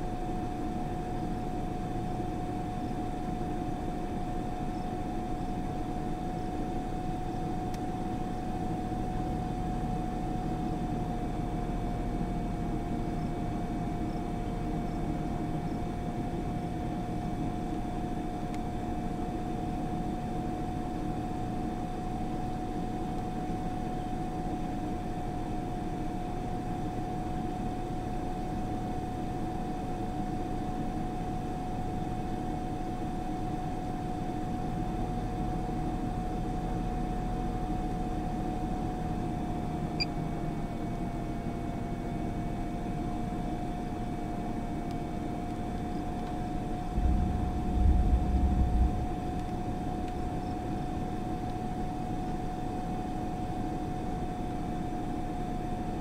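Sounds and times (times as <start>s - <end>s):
constant hum: 0.0s - 56.0s
low vehicle rumble: 46.7s - 52.5s.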